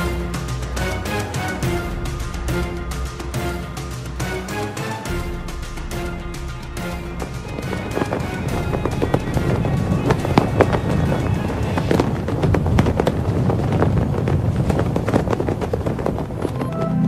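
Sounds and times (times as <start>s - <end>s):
music soundtrack: 0.0s - 12.8s
steady low rumble: 0.0s - 17.0s.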